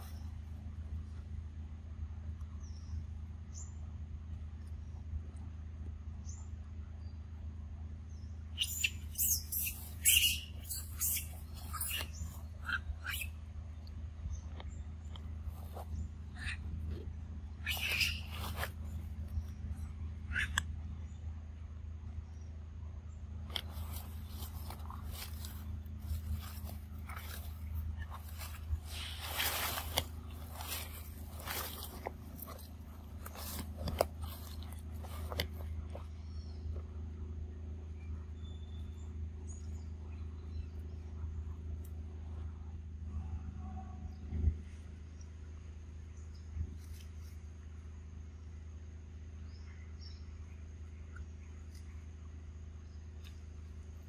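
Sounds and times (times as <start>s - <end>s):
low steady hum: 0.0s - 54.0s
low steady rumble: 0.0s - 54.0s
macaques squealing: 8.6s - 13.4s, 16.4s - 16.7s, 17.6s - 18.6s, 20.3s - 20.6s.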